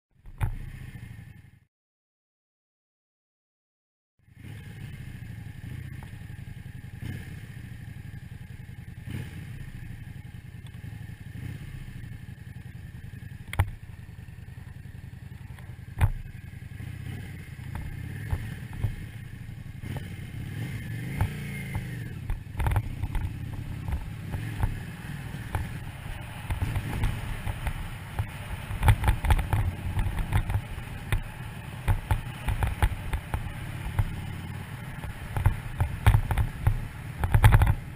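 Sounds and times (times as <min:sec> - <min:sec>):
motorcycle engine running: 0:00.2 - 0:01.7, 0:04.2 - 0:37.9
bumpy noise with thumps: 0:35.0 - 0:37.9.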